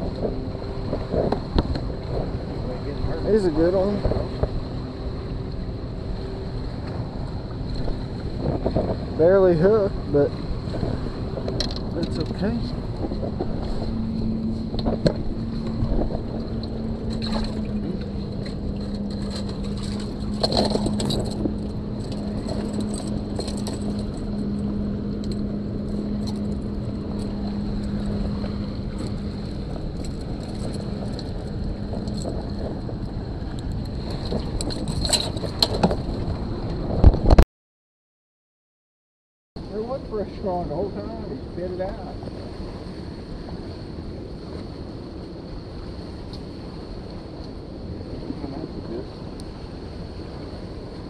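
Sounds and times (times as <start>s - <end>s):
steady low hum: 0.0s - 37.4s.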